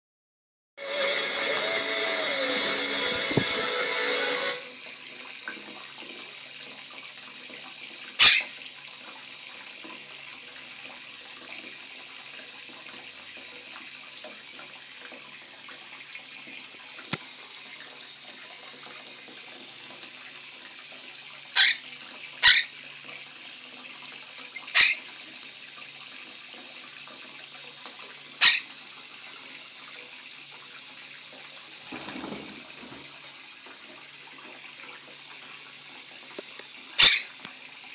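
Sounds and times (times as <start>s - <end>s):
tap running into basin: 2.5s - 37.9s
bird wings fluttering: 31.9s - 33.1s.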